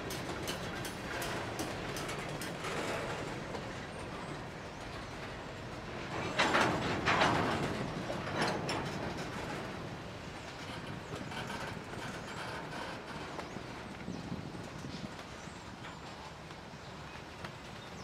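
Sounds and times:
train wheels rumbling on rail: 0:00.0 - 0:18.0
wheels clattering: 0:06.0 - 0:15.1.

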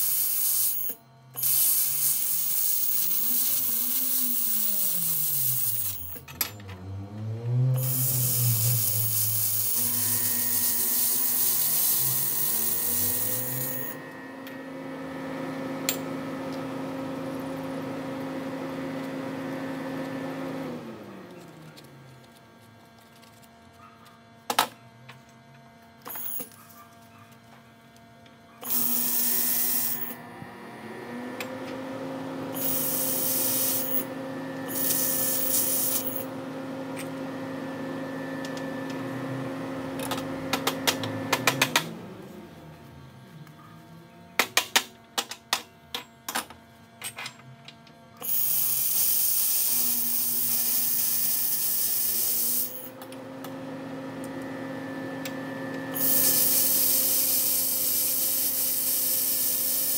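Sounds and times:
machine hum: 0:00.0 - 0:23.8, 0:27.5 - 0:44.6
gas hiss from torch: 0:01.4 - 0:06.0, 0:07.8 - 0:13.9, 0:56.0 - 0:59.9.

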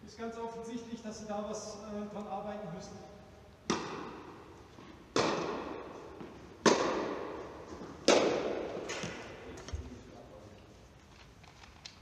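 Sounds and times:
racket striking tennis ball: 0:03.6 - 0:09.5.

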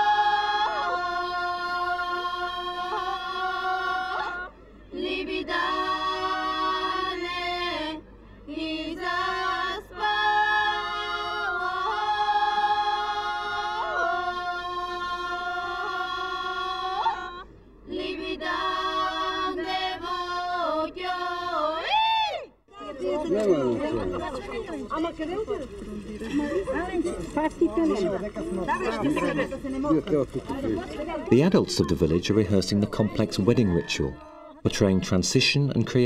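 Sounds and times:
women singing unaccompanied: 0:00.0 - 0:23.1.

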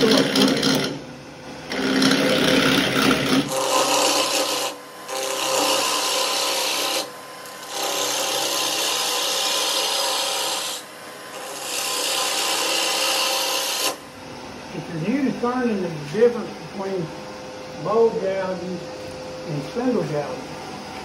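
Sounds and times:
gouge scraping wood on a lathe: 0:00.0 - 0:01.0, 0:01.7 - 0:14.0.

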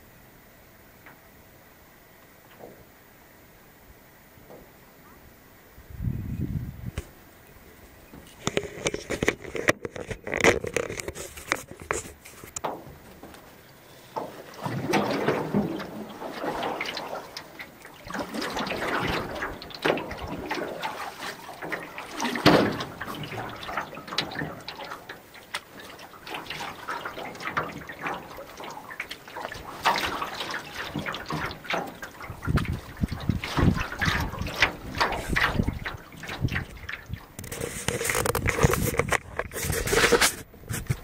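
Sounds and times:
paddle splashing through water: 0:08.1 - 0:41.0
water dripping: 0:12.6 - 0:39.1.

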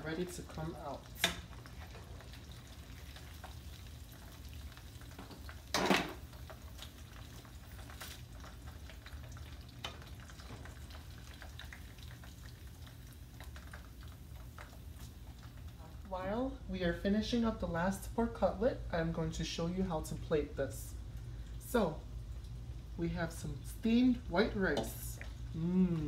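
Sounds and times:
cutlets sizzling in oil: 0:00.0 - 0:16.4.

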